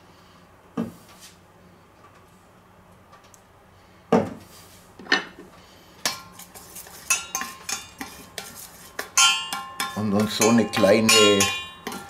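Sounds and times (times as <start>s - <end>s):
metal spoon clinking bowl: 6.1s - 12.0s.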